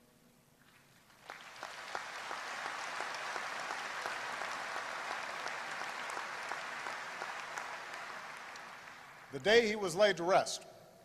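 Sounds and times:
crowd applauding: 0:00.7 - 0:10.0.

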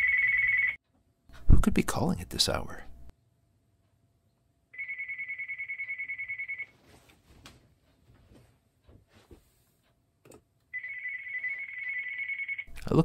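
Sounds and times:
electronic phone ringing: 0:00.0 - 0:00.8, 0:04.8 - 0:06.8, 0:10.7 - 0:12.7
faint rustles and small knocks: 0:06.6 - 0:10.6.

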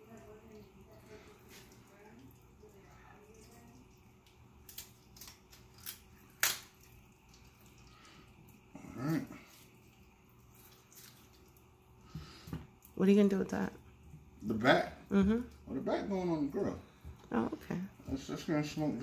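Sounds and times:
kitchen shears cracking bone: 0:04.2 - 0:07.4.

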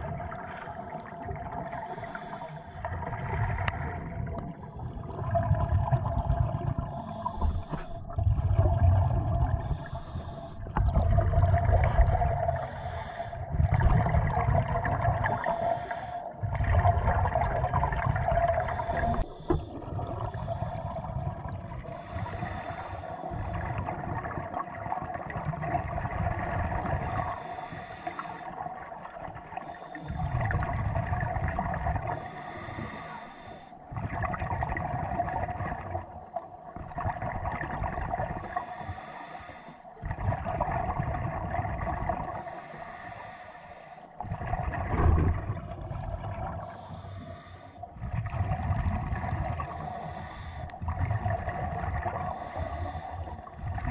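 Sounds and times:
exhaled bubbles rumbling: 0:00.0 - 0:33.1, 0:33.8 - 0:39.0, 0:39.9 - 0:42.5, 0:44.2 - 0:47.1, 0:47.8 - 0:53.9
faint steady hum: 0:00.0 - 0:53.9
diver breathing through regulator: 0:01.6 - 0:05.4, 0:06.8 - 0:08.2, 0:09.6 - 0:10.8, 0:12.4 - 0:13.6, 0:14.8 - 0:16.4, 0:18.5 - 0:23.9, 0:26.9 - 0:28.6, 0:32.1 - 0:33.9, 0:38.4 - 0:40.0, 0:42.2 - 0:44.4, 0:46.6 - 0:48.0, 0:49.6 - 0:53.9.

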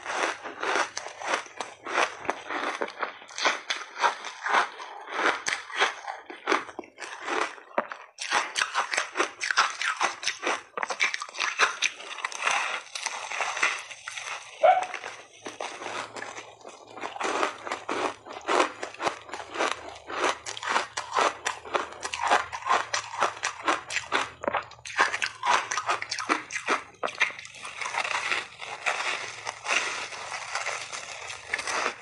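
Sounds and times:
ice crunching while chewed: 0:00.0 - 0:32.0.

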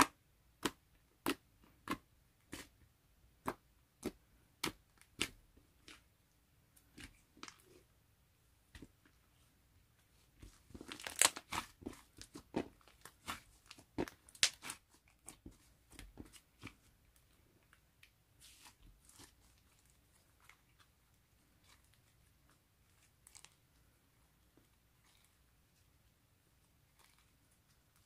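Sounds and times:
crunchy slime crackling and clicking: 0:10.8 - 0:15.4.

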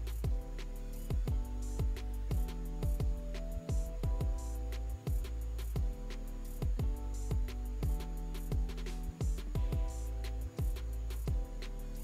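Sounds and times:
background music with drum thumps: 0:00.0 - 0:12.0.

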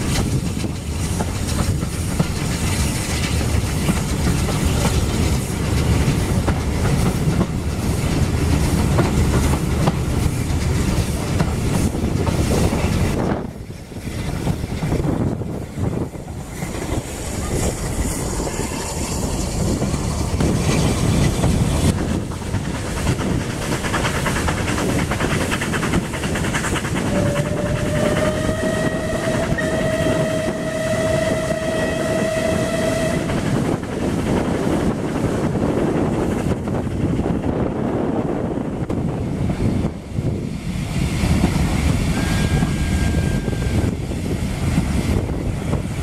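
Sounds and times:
train rumbling on rails: 0:00.0 - 0:46.0
steam locomotive whistle: 0:27.0 - 0:33.6, 0:42.1 - 0:44.1.

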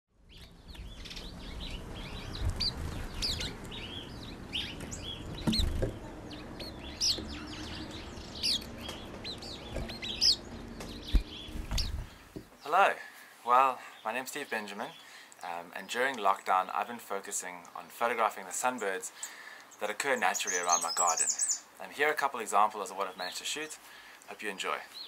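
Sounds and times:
small birds chirping: 0:00.2 - 0:25.0
low thumps: 0:04.6 - 0:12.6.

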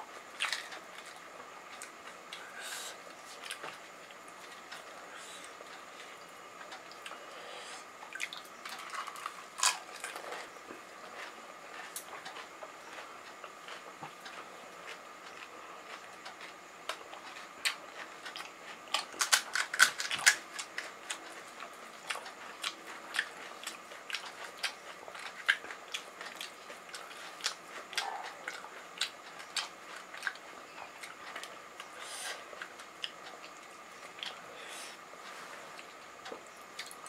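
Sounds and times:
crunchy chewing: 0:00.1 - 0:37.0
crisp shells cracking: 0:19.0 - 0:20.7.

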